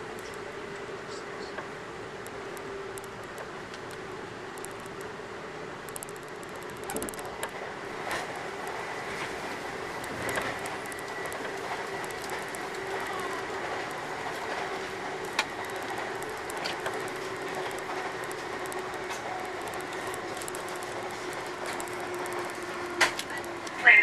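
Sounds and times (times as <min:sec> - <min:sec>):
train rolling noise: 0:00.0 - 0:24.0
sharp clicks: 0:02.2 - 0:05.1, 0:05.8 - 0:07.6, 0:10.0 - 0:14.4, 0:15.2 - 0:23.8.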